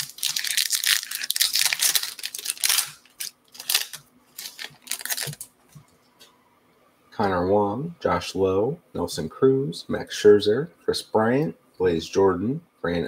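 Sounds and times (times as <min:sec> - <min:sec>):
foil wrapper tearing and crinkling: 0:00.0 - 0:05.5
cards rustling and clicking: 0:00.0 - 0:05.9.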